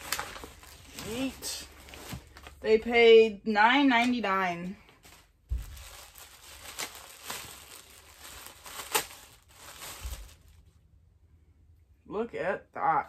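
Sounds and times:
plastic bags rustling: 0.0 - 2.9, 4.9 - 10.8.

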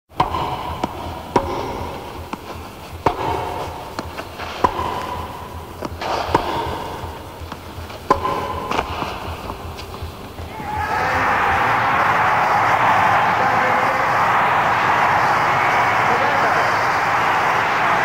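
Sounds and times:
tennis ball bouncing: 0.1 - 13.5
tennis racket hitting ball: 0.1 - 13.5.

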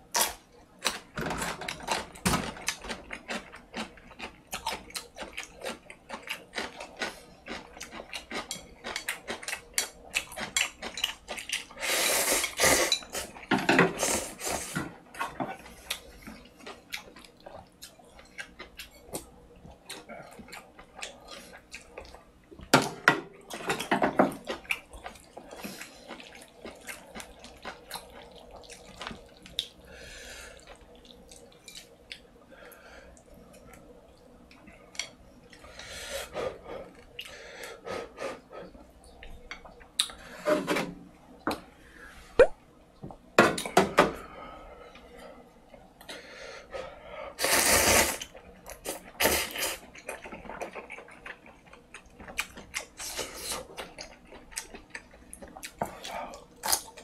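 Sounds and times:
loud slurps: 47.4 - 48.3
wet chewing: 48.2 - 57.0.

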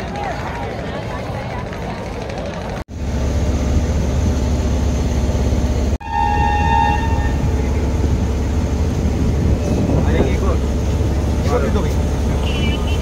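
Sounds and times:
motorboat engine droning: 2.5 - 13.0
high steady horn tone: 6.0 - 7.9, 12.3 - 13.0.

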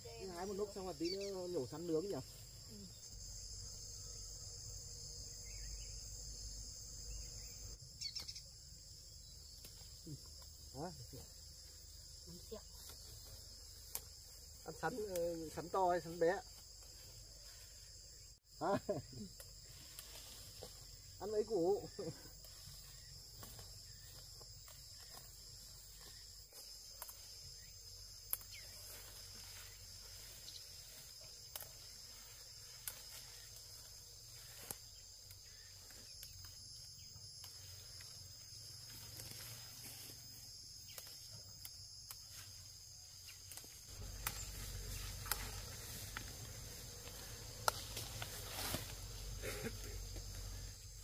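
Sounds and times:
high-pitched insect chorus: 0.0 - 51.0
foliage clicks and rustles: 19.3 - 21.3, 22.3 - 51.0.

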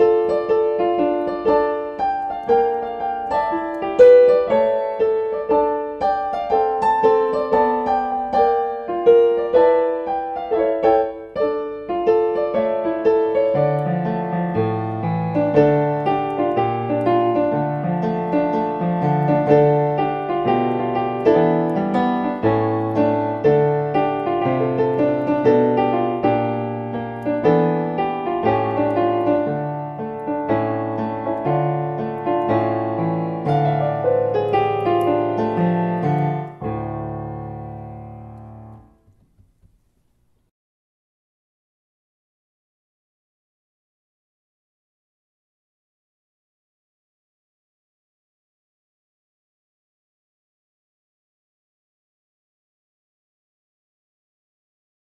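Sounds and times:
blues piano: 0.0 - 40.0.

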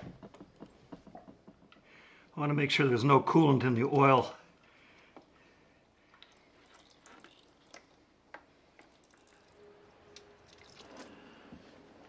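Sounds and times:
oil dripping into plastic pan: 6.1 - 11.2.

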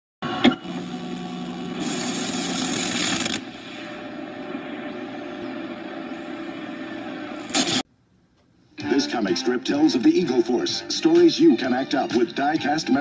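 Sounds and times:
low hum: 0.2 - 7.8
tape playback hiss: 0.2 - 13.0.

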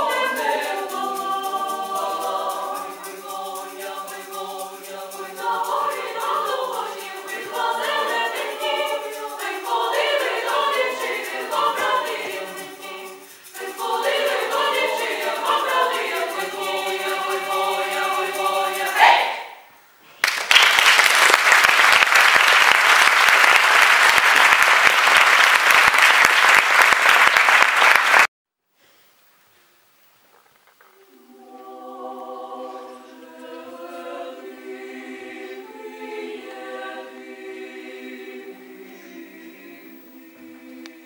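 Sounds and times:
female choir singing a cappella: 0.0 - 19.6, 31.0 - 41.0
audience applause: 20.2 - 28.3.

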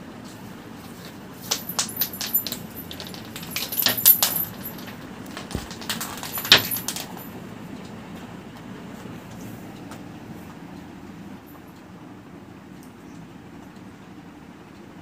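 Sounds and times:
kittens scampering on concrete: 0.8 - 7.3.

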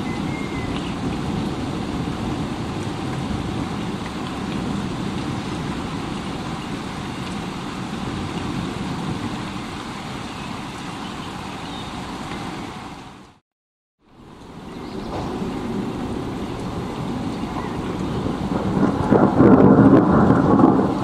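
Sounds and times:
steady rain: 0.0 - 13.4, 14.0 - 21.0.

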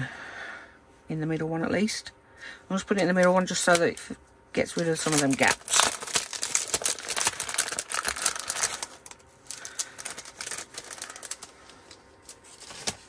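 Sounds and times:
packet crinkling and clicking: 3.0 - 13.0.

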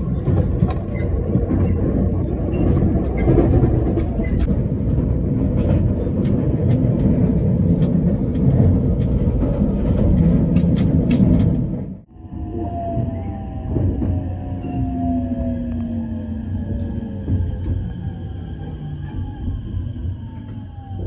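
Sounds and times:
wheels clicking over rail joints: 0.0 - 12.0
electric train rumbling: 0.0 - 21.0.

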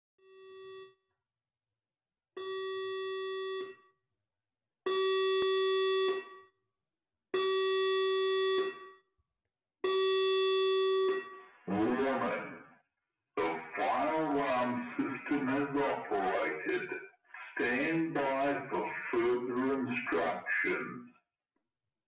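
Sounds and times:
fire alarm buzzing: 4.9 - 6.5, 7.4 - 9.0, 9.9 - 11.6.

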